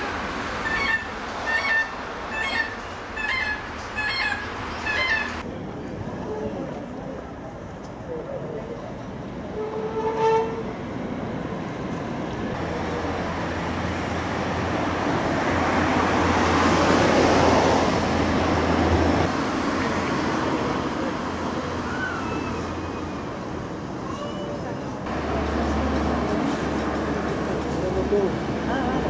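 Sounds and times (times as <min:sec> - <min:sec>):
passing vehicle engine and tyres: 0:09.6 - 0:24.0, 0:25.0 - 0:29.0.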